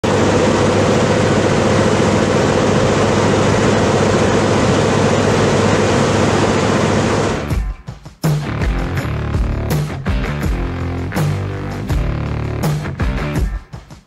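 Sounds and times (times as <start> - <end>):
rushing air: 0.0 - 7.6
aircraft engine drone: 0.0 - 7.7.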